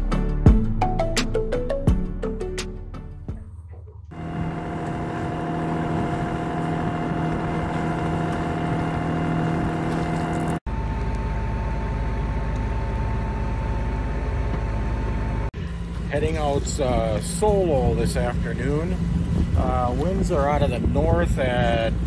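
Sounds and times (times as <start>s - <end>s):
boat engine humming: 3.3s - 22.0s
wind and water rushing: 4.1s - 10.6s, 16.4s - 22.0s.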